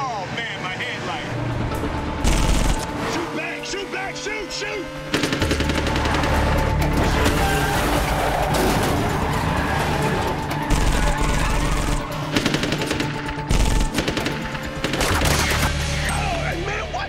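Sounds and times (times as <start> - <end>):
action film score: 0.0 - 17.0
automatic gunfire: 2.2 - 2.8, 5.1 - 6.2, 10.7 - 15.7.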